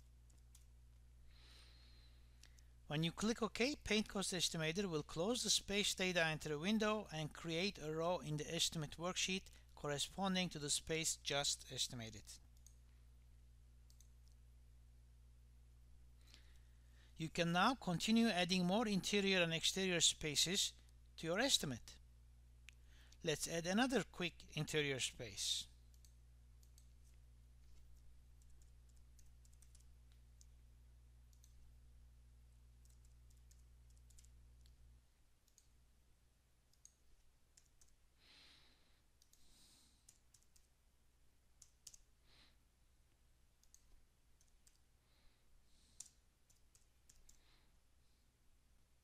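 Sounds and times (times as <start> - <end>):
low electrical hum: 0.0 - 49.0
computer mouse clicks: 0.3 - 0.7, 12.2 - 12.8, 13.9 - 14.4, 25.9 - 30.6, 31.3 - 31.7, 32.8 - 34.8, 35.4 - 35.7, 36.7 - 38.0, 39.2 - 40.7, 41.6 - 42.1, 43.6 - 44.9, 46.0 - 47.5
keystrokes: 0.3 - 0.7, 25.9 - 30.6, 31.3 - 31.7, 32.8 - 34.8, 35.4 - 35.7, 36.7 - 38.0, 39.2 - 40.7, 41.6 - 42.1, 43.6 - 44.9, 46.0 - 47.5.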